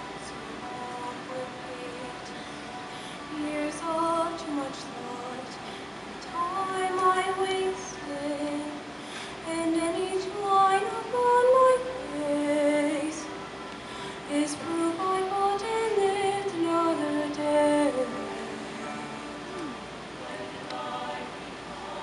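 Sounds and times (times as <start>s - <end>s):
choir singing: 14.3s - 22.0s.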